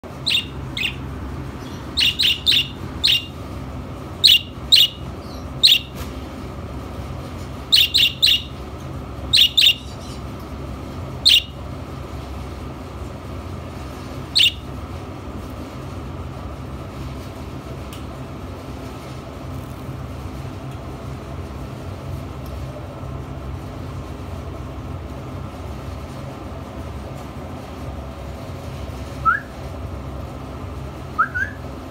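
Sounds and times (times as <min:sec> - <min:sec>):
steady low hum: 0:00.0 - 0:31.9
budgerigar chirping: 0:00.2 - 0:01.0, 0:01.6 - 0:03.4, 0:04.2 - 0:05.9, 0:07.7 - 0:08.6, 0:09.3 - 0:10.2, 0:11.2 - 0:11.6, 0:14.3 - 0:14.7.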